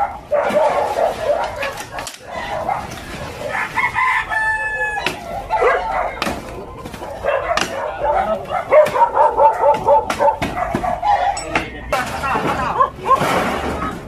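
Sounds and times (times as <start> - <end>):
rooster crowing: 3.5 - 5.2
wooden boards knocking and clattering: 11.5 - 14.0.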